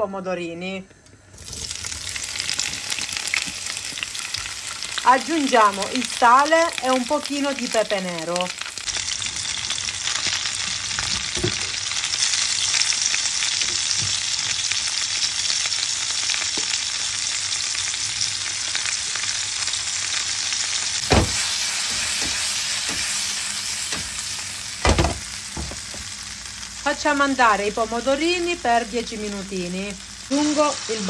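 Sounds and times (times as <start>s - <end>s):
tomatoes sizzling in oil: 1.2s - 31.0s
sharp knocks: 21.0s - 21.4s, 24.8s - 26.0s.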